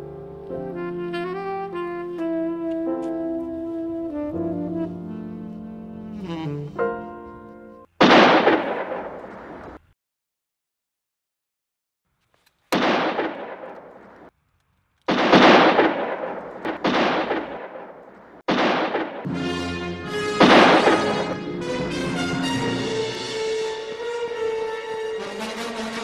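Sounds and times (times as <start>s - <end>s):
brass music: 0.0s - 7.9s, 19.3s - 26.0s
handgun shots: 8.0s - 9.7s, 12.7s - 14.3s, 15.1s - 19.3s, 20.4s - 21.3s.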